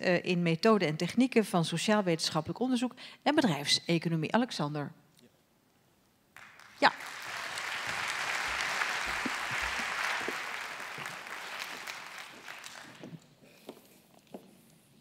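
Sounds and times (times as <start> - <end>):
audience applauding: 6.4 - 13.3.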